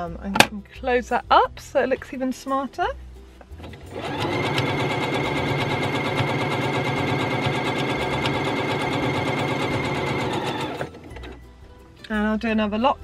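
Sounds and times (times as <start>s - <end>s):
sewing machine stitching: 3.6s - 11.4s.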